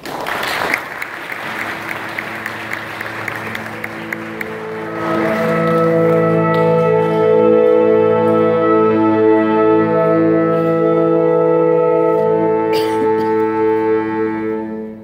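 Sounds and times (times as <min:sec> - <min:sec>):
audience applause: 0:00.0 - 0:06.8
saxophone ensemble chords: 0:00.9 - 0:15.0.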